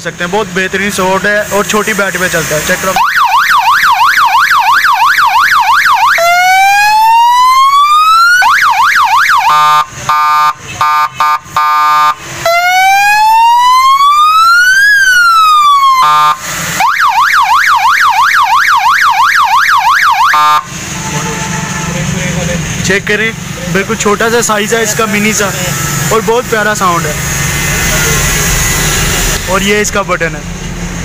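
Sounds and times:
electronic siren: 2.8s - 22.0s.

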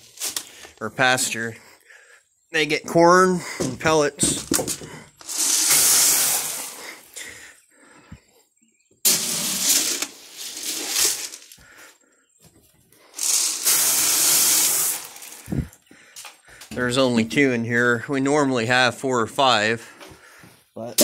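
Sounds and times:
feed pellets pouring into trough: 5.2s - 7.0s, 9.1s - 11.6s, 13.2s - 15.7s.

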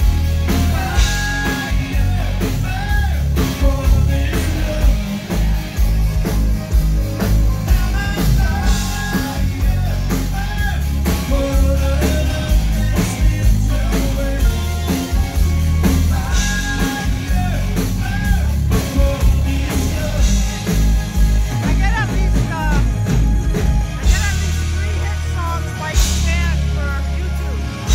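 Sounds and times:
rock band playing live: 0.0s - 27.9s
lead singer singing: 0.2s - 27.9s.

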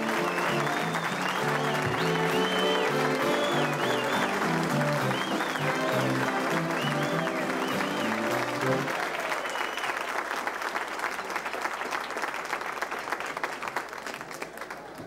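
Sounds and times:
music: 0.0s - 8.9s
audience applauding: 0.0s - 15.0s.

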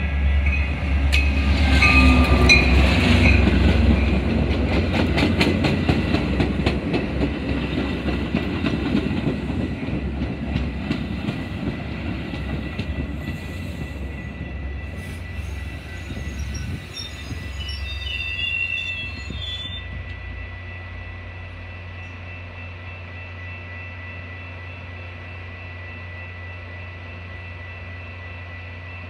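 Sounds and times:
standing train humming: 0.0s - 29.0s
train rumbling past: 0.0s - 29.0s
wheel and brake squeal: 14.8s - 20.1s.

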